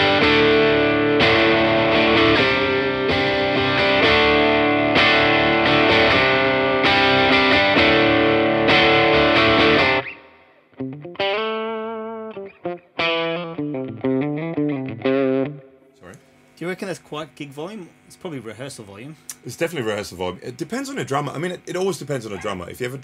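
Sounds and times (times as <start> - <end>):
picked guitar notes: 0.0 - 16.4
overdriven electric guitar chords: 0.0 - 16.5.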